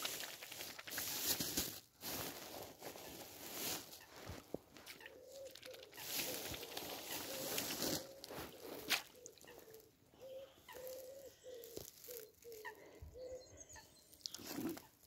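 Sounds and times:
pigeon cooing: 5.0s - 14.8s.

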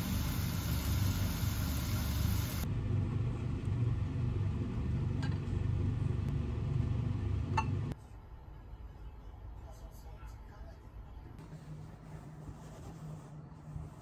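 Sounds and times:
patties sizzling in oil: 0.0s - 2.6s.

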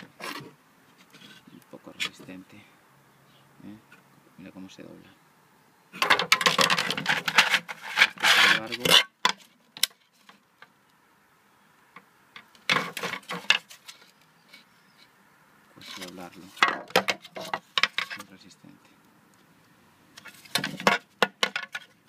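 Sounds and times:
handling noise: 6.0s - 10.7s, 12.4s - 14.2s, 20.2s - 22.0s
plastic shell creaking and crackling: 6.0s - 10.7s, 12.4s - 14.2s, 15.8s - 18.4s, 20.2s - 22.0s.

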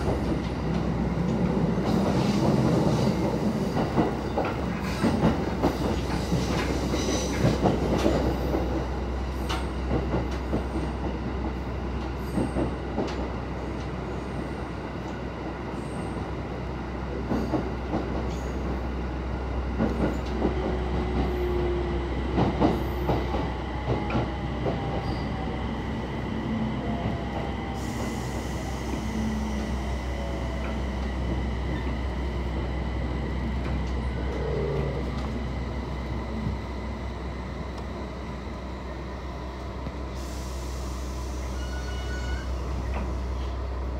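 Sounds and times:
train rumble: 0.0s - 43.9s
faint wheel squeals: 41.4s - 42.7s.

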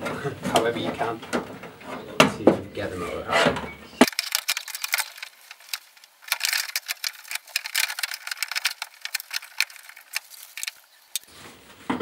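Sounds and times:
metal parts rattling and clicking: 4.0s - 11.3s.

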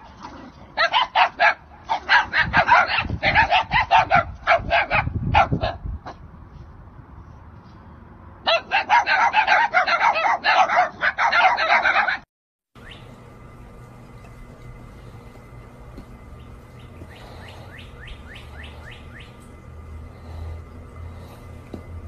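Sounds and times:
dogs barking: 0.0s - 6.2s, 8.4s - 12.3s, 15.4s - 22.0s.

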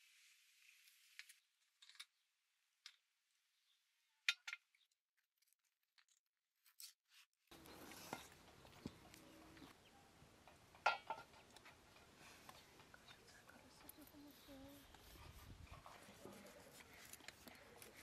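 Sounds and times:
faint steady hiss: 0.0s - 1.4s.

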